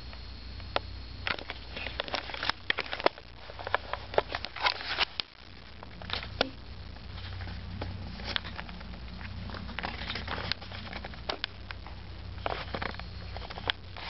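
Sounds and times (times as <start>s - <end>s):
camera rubbing against cloth: 7.1s - 14.0s.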